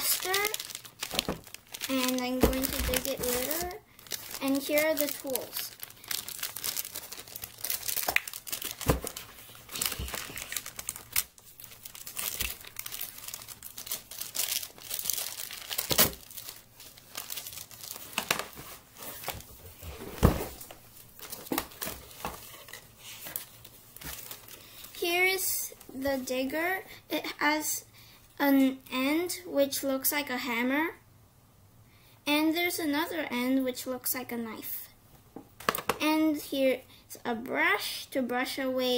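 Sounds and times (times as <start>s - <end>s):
plastic bag crinkling: 0.0s - 19.6s, 20.5s - 25.0s.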